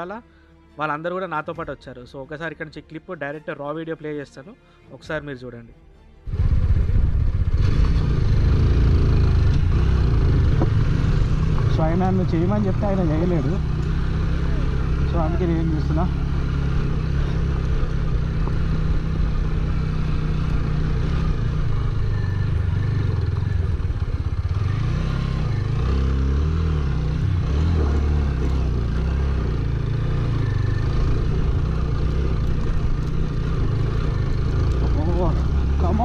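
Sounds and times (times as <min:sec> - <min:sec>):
motorcycle engine under load: 0:06.3 - 0:36.0.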